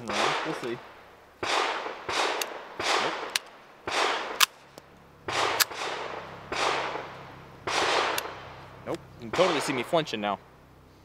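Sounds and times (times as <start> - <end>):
pistol shots: 0.0 - 4.7, 5.3 - 8.6, 9.3 - 10.0
sharp clicks: 2.1 - 5.9, 7.7 - 9.8.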